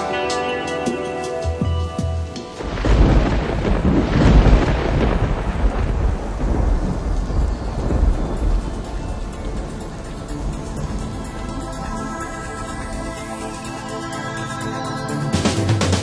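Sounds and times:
music: 0.0s - 16.0s
heavy rain: 2.0s - 16.0s
thunder rumbling: 2.5s - 13.7s.

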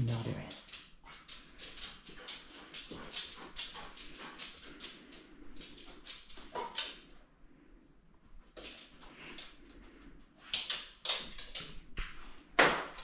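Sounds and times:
dog sniffing: 1.0s - 7.0s.

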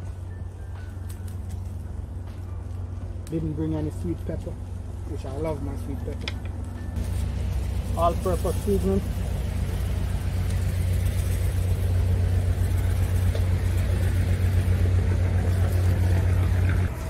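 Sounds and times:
low engine rumble: 0.0s - 17.0s
light hiss: 7.0s - 17.0s.

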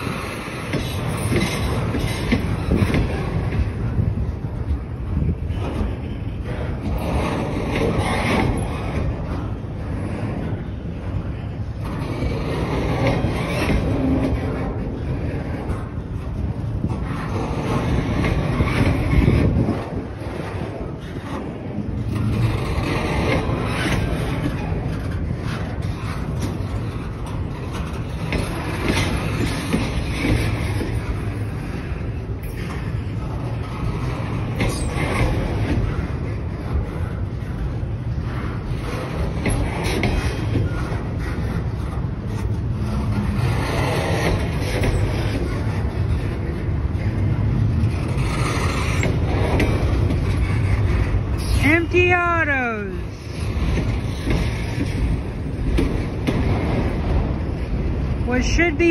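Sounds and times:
rail car clanks and rattles: 0.0s - 58.9s
steel train wheels rumbling on rail: 0.0s - 58.9s.

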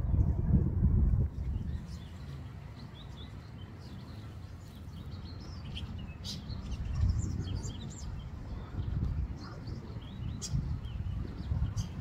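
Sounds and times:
small birds chirping: 1.3s - 12.0s.

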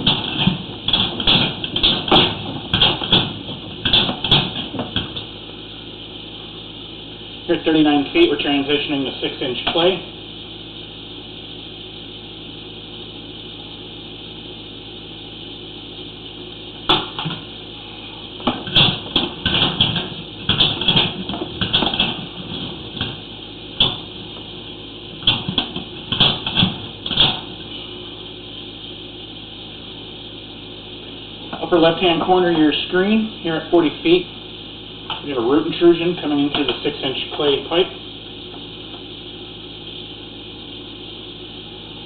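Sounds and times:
cable knocking and rattling: 0.0s - 5.3s
steady hiss and hum: 0.0s - 42.0s.

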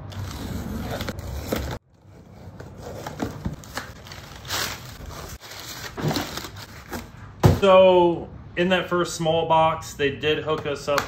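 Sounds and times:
packing paper rustling: 2.4s - 7.2s.

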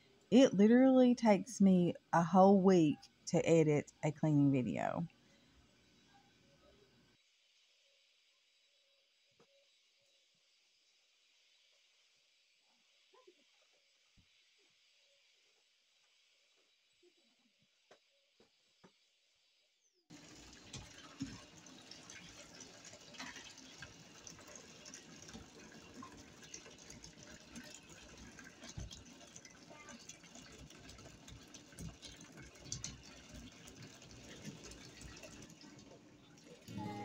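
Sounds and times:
water running from a tap: 20.1s - 37.0s.

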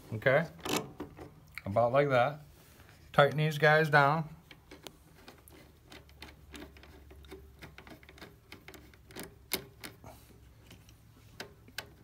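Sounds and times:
small metal clicks and rattles: 4.4s - 12.0s.

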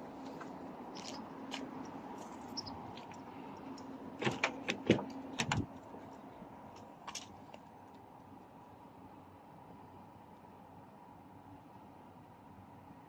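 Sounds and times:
car door latch clicks: 4.2s - 5.7s.

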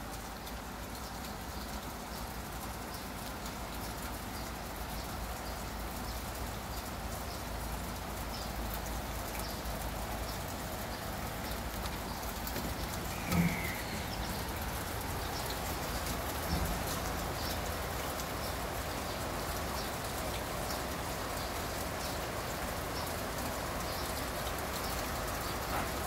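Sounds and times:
rain falling on wet paving: 0.0s - 26.0s
faint bird chirp: 12.1s - 14.6s.

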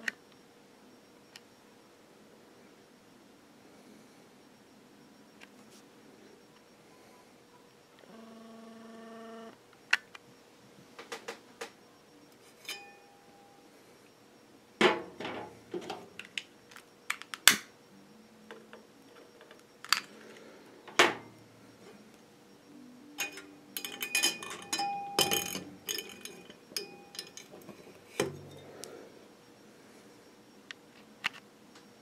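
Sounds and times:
glass and metal clinks: 12.6s - 13.1s, 23.2s - 28.8s
glass ringing: 12.6s - 13.6s, 23.2s - 28.9s.

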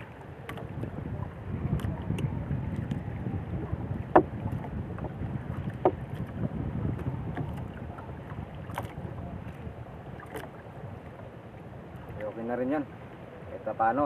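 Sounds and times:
wind buffeting microphone: 0.0s - 14.0s
sharp knocks: 4.1s - 4.3s.

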